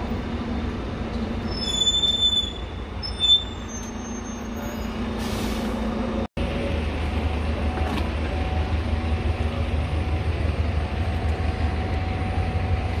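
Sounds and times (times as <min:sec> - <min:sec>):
bus engine humming: 0:00.0 - 0:13.0
brakes squealing: 0:01.1 - 0:06.2.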